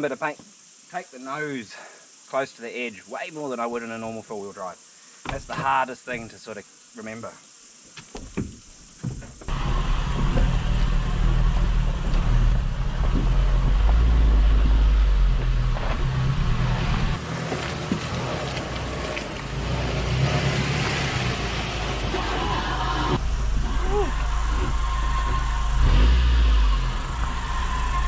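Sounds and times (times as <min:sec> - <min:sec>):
van engine rumbling: 0:09.3 - 0:28.0.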